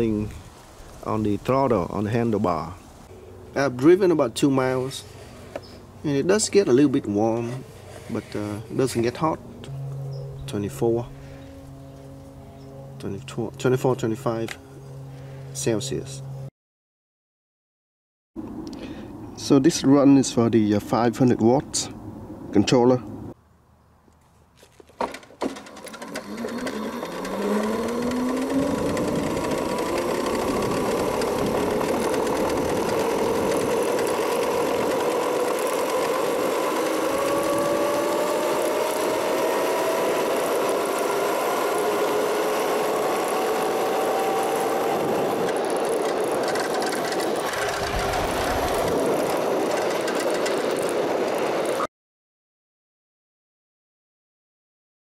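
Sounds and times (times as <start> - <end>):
wind noise: 0.0 - 1.5, 27.7 - 35.3, 44.3 - 51.4
electric scooter motor whining: 3.0 - 13.1, 25.0 - 51.9
low rumble: 47.3 - 50.1.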